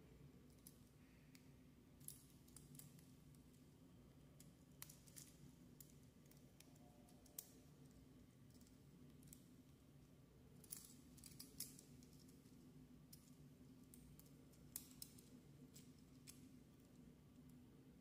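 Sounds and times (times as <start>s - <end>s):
low steady background hum: 0.0s - 18.0s
small plastic parts clicking: 4.8s - 7.6s, 13.9s - 16.4s.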